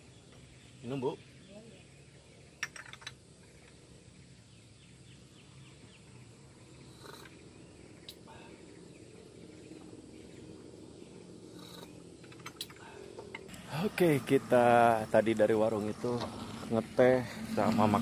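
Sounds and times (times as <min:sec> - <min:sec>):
faint high chirping calls: 0:00.0 - 0:13.6.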